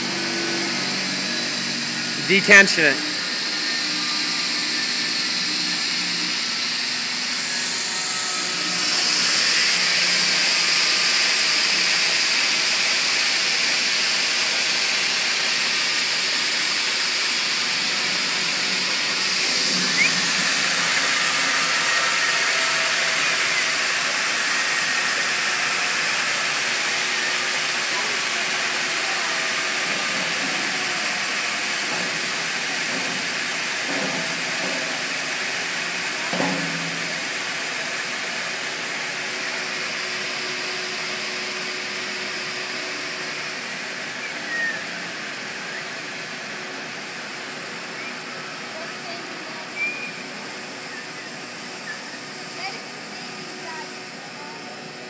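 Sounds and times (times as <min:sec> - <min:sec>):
belt sander hissing rush: 0:00.0 - 0:55.0.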